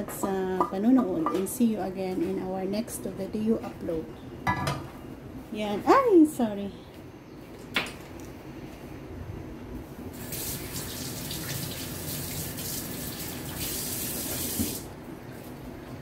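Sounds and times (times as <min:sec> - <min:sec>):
water running from a tap: 0:10.2 - 0:14.9.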